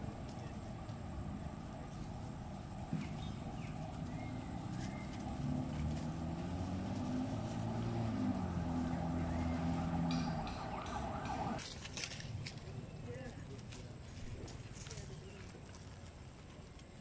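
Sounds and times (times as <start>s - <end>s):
motor engine humming: 0.0s - 11.6s.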